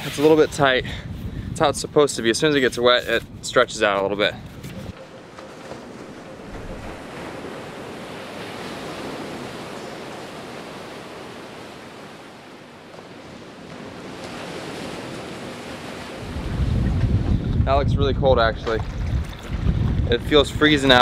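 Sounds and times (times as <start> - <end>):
surf washing against rocks: 5.4 - 17.3.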